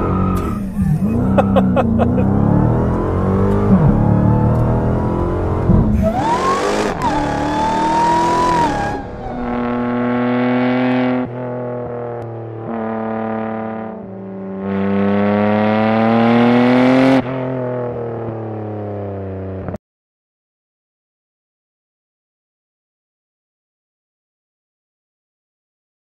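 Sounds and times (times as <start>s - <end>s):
sports car engine revving: 0.0s - 19.7s.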